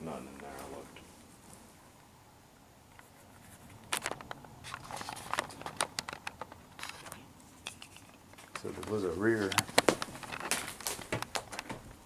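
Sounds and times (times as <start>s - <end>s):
footsteps on debris: 8.4s - 12.0s.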